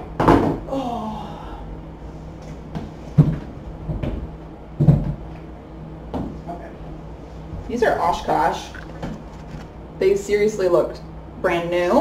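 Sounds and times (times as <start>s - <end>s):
person saying oh: 0.7s - 1.7s
items rummaged on wooden table: 8.7s - 9.7s.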